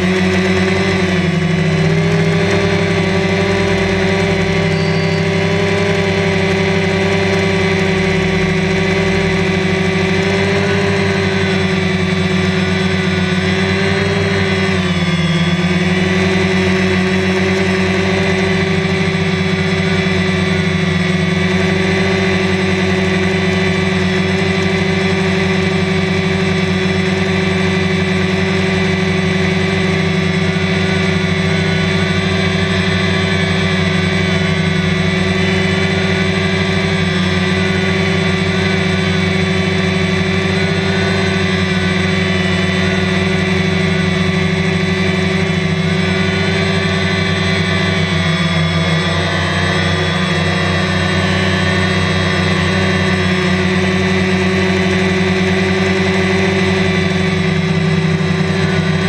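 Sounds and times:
drone motors humming: 0.0 - 59.0.

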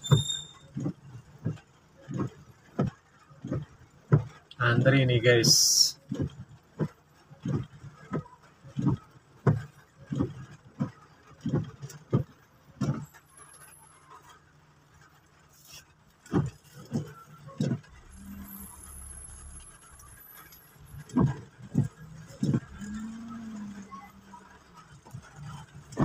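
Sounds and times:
faint rain patter: 0.0 - 26.0
windshield wipers sweeping glass: 0.0 - 26.0
engine hum: 5.7 - 26.0.

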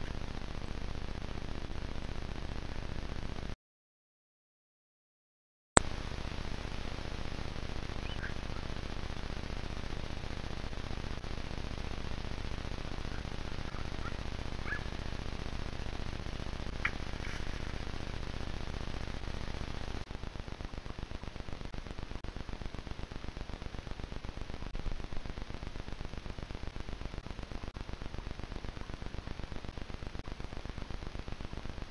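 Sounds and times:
microphone hiss: 0.0 - 3.6, 5.8 - 31.9
faint high chirps: 8.0 - 8.8.

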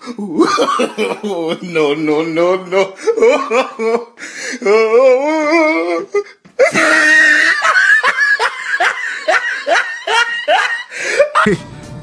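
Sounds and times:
man laughing loudly: 0.2 - 2.0, 2.8 - 4.2, 6.6 - 11.7.

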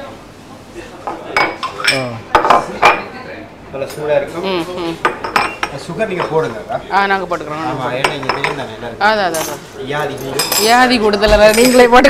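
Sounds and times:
glasses clinking on saucers: 5.0 - 6.4, 10.2 - 12.0
people talking: 5.9 - 12.0.

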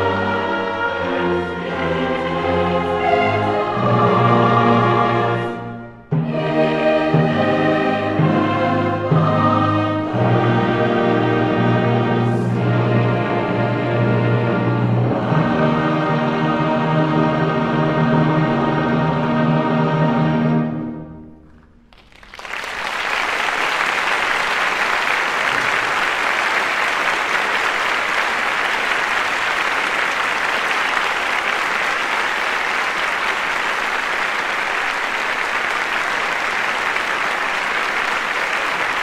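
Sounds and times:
choir and orchestra chord: 0.0 - 21.3
audience applause: 21.6 - 39.0.

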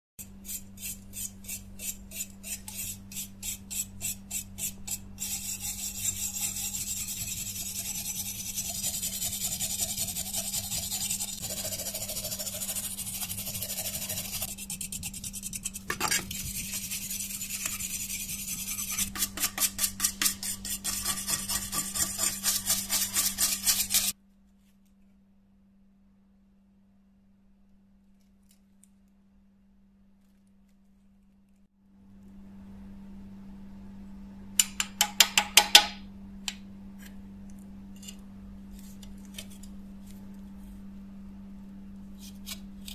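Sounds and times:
wire brush scrubbing rust: 0.2 - 24.1.

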